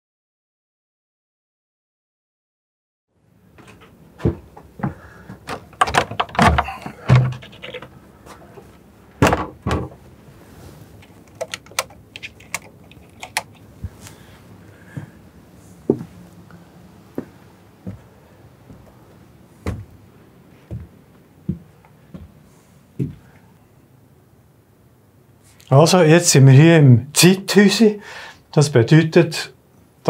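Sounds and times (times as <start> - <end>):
footsteps on wooden planks: 3.5 - 10.0, 15.9 - 16.2, 17.1 - 20.0, 20.6 - 22.4
boards creaking: 3.6 - 10.1.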